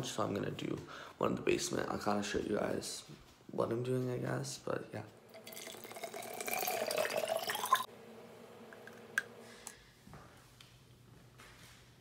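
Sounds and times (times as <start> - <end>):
water pouring into bottle: 5.3 - 7.9.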